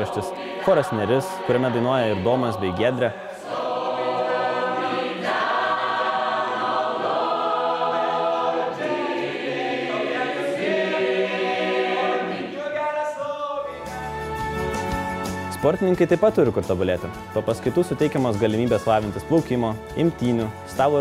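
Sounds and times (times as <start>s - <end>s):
mixed choir singing chords: 0.0s - 14.7s.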